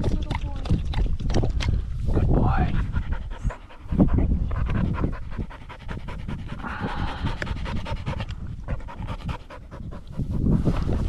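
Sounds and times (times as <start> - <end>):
dog panting quickly: 2.2 - 11.0.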